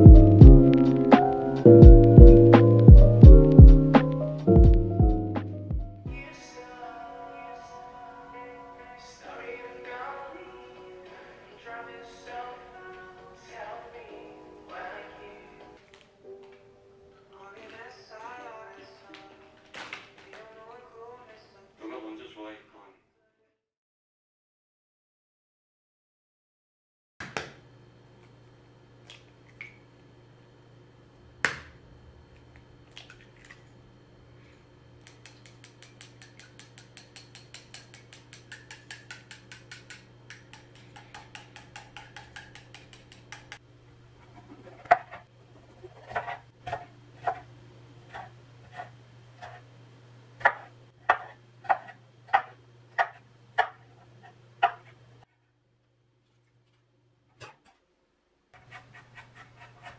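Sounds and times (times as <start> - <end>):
chopsticks beating eggs: 35.0 - 43.6, 44.2 - 49.7, 50.4 - 55.0
knife chopping on wooden board: 35.1 - 43.6, 50.4 - 53.8, 54.6 - 54.9
egg knocked on ceramic bowl: 35.8 - 43.6.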